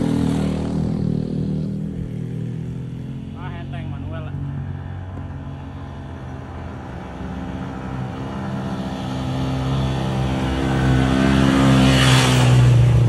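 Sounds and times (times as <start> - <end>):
motorcycle engine climbing: 0.0 - 13.0.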